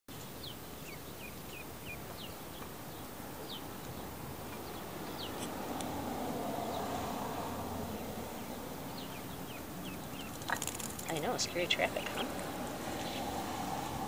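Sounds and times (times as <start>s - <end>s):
ducklings peeping: 0.1s - 5.9s, 7.9s - 13.4s
low rushing noise: 2.4s - 14.0s.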